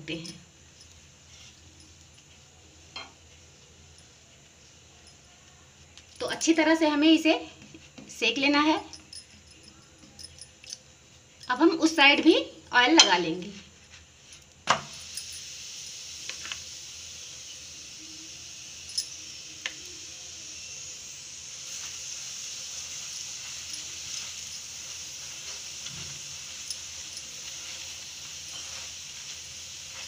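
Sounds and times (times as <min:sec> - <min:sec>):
oil sizzling on a hot pan: 0:00.1 - 0:09.1, 0:10.9 - 0:30.0.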